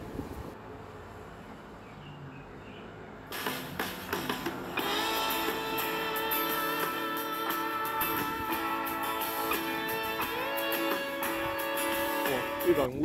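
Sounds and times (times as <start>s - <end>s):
guitar background music: 3.3s - 13.0s.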